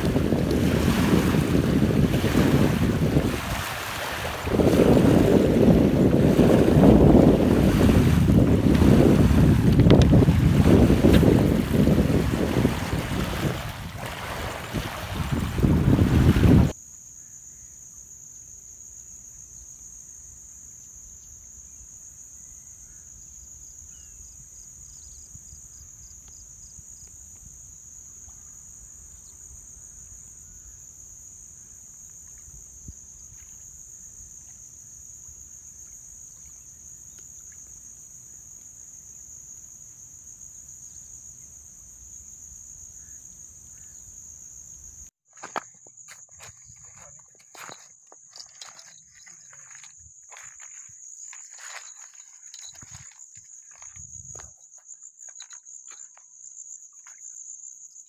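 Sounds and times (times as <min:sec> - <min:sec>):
faint low wind rumble: 0:00.0 - 0:16.7
crickets trilling: 0:00.0 - 0:58.0.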